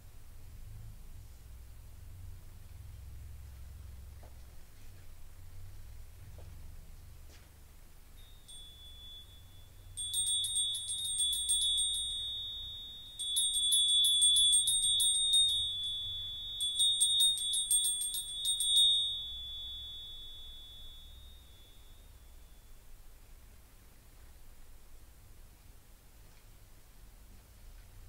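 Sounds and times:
small hand bell ringing: 8.1 - 23.2.

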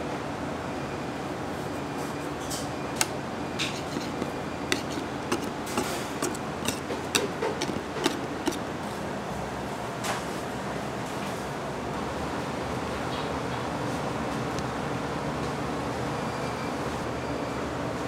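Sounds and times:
clicks and taps of decorating tools: 3.0 - 8.6.

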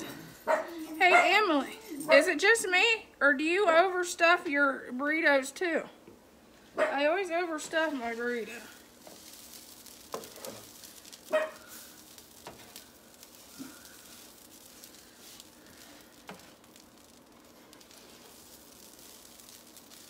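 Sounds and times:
hash browns sizzling on a griddle: 6.4 - 20.0.

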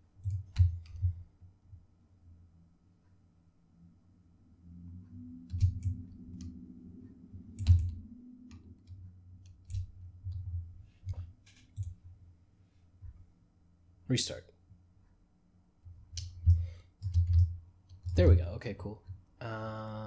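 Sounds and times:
faint low hum: 0.0 - 20.0.

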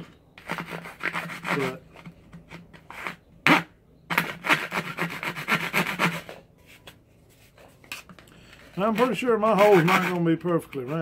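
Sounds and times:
hand saw cutting gourd: 0.4 - 1.8, 2.9 - 6.3, 8.9 - 10.3.

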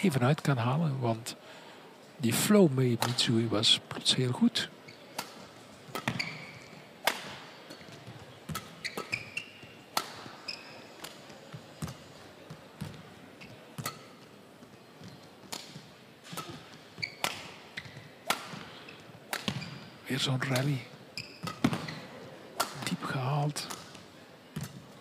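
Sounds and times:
shoes squeaking on court: 4.6 - 24.0
racket striking shuttlecock: 5.1 - 7.9, 8.5 - 10.3, 15.4 - 17.6, 18.2 - 18.7, 19.3 - 19.6, 21.4 - 22.0, 22.6 - 22.9.

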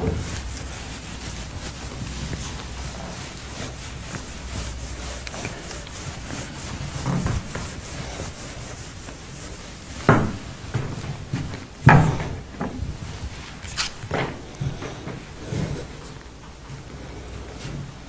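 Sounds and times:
eraser rubbing on whiteboard: 0.0 - 10.6, 13.3 - 14.0.

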